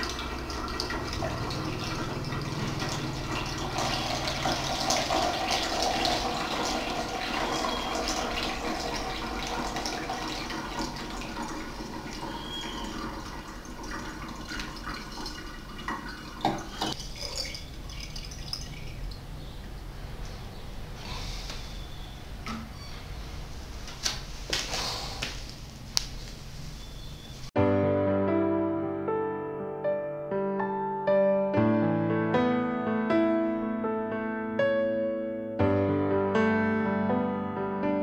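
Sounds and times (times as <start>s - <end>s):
liquid trickling and dripping: 0.0s - 20.4s.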